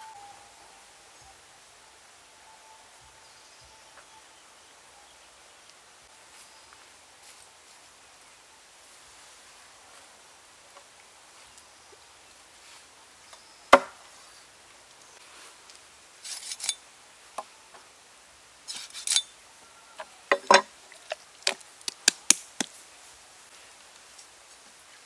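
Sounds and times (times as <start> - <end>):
rustling and scraping: 15.2 - 16.8, 18.7 - 19.3.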